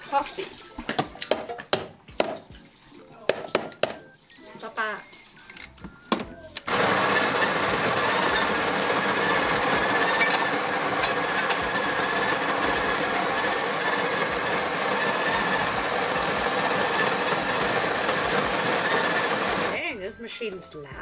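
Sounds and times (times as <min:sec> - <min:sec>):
espresso machine pump buzzing: 0:06.7 - 0:19.8.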